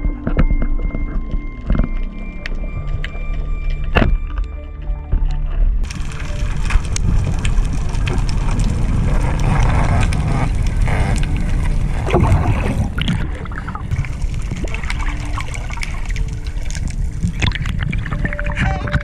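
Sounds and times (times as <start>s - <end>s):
underwater clicks: 5.2s - 19.0s
muffled underwater rush: 5.7s - 19.0s
gurgling bubbles: 5.8s - 19.0s.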